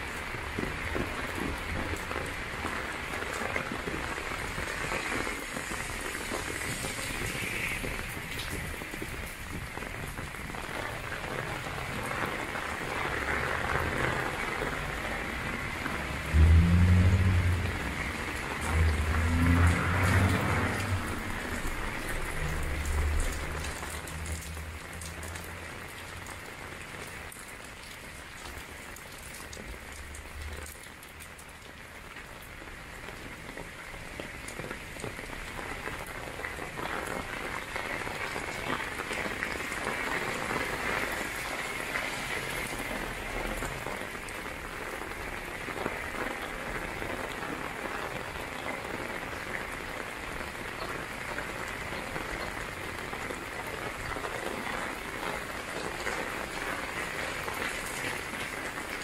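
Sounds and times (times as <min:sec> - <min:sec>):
rain pattering on an umbrella: 0:00.0 - 0:59.0
rain splashing on pavement: 0:00.0 - 0:59.0
low rumble: 0:16.2 - 0:25.0.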